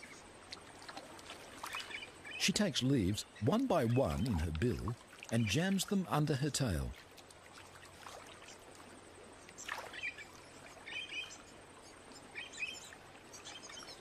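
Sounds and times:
water trickling and lapping: 0.0s - 14.0s
bird chirps: 9.6s - 14.0s.

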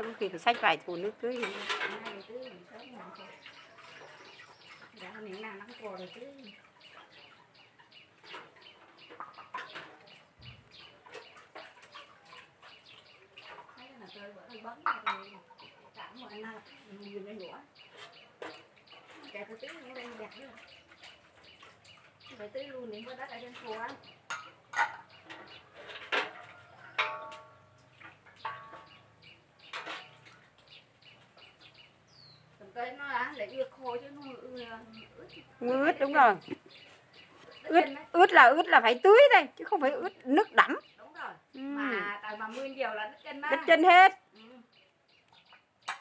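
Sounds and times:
chickens clucking: 0.0s - 41.0s
small birds chirping: 0.0s - 46.0s
sharp knocks and clinks: 24.2s - 30.4s.

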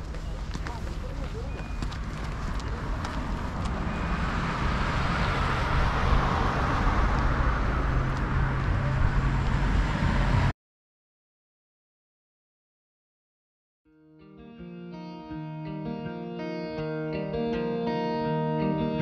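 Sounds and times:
road traffic rumble: 0.0s - 10.5s.

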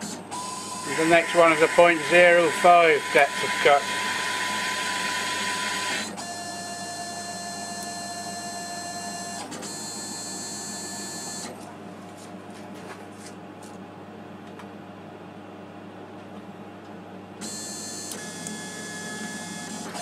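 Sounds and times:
lathe motors whining: 0.0s - 9.5s
quiet machine hum: 0.0s - 20.0s.

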